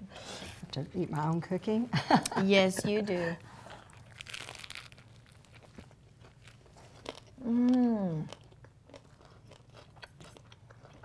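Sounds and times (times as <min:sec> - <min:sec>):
people chewing with soft crunching: 0:03.2 - 0:11.0
person humming mmm of enjoyment: 0:07.4 - 0:08.3.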